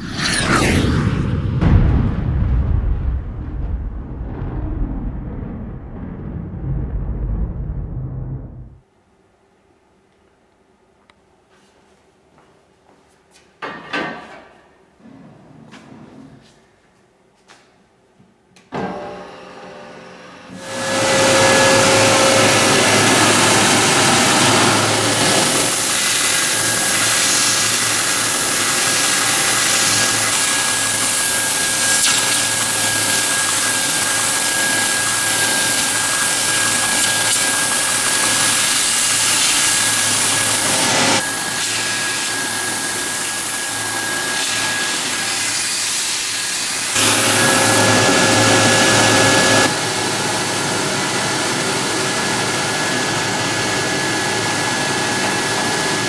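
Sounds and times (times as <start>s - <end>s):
high-pitched machine whine: 20.0s - 56.0s.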